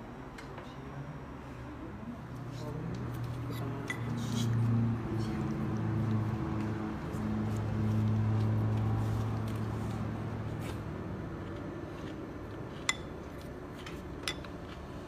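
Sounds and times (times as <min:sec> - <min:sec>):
spoon clinking against dish: 0:12.9 - 0:13.1, 0:14.2 - 0:14.5.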